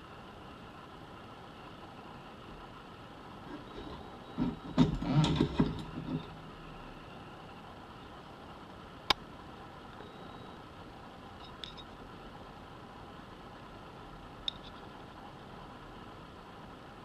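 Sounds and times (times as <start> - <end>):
steady low hum: 0.0 - 17.0
metal tool clattering on sewing machine: 3.6 - 6.2.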